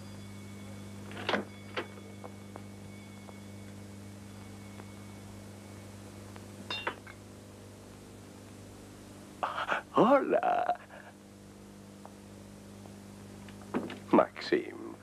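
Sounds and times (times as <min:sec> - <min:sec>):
low electrical hum: 0:00.0 - 0:15.0
small objects knocking on a table: 0:13.6 - 0:14.1.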